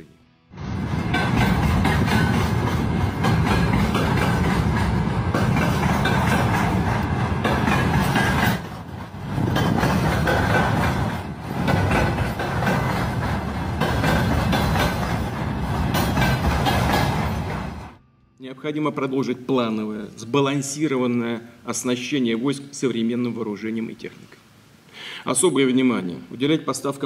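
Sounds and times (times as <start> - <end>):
freight train wheels rumbling: 0.6 - 18.0.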